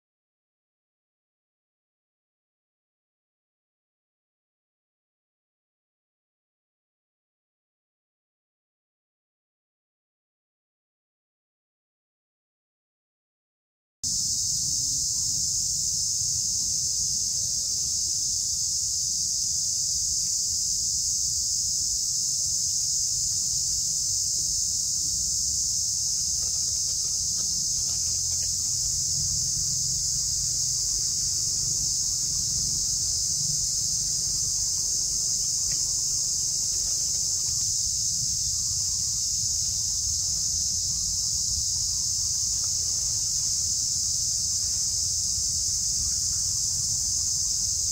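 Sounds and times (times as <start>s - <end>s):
forest insects droning: 14.1s - 47.9s.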